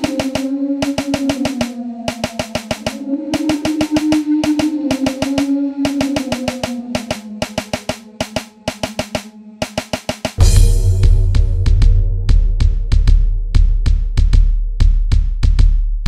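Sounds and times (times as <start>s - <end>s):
sliding synth tone: 0.0s - 9.4s
rapid drum hits: 5.9s - 16.0s
heavy deep bass: 10.4s - 16.0s.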